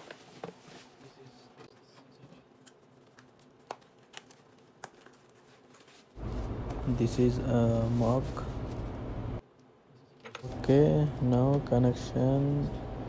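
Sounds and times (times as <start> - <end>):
plastic and cardboard crinkling: 0.0 - 6.5.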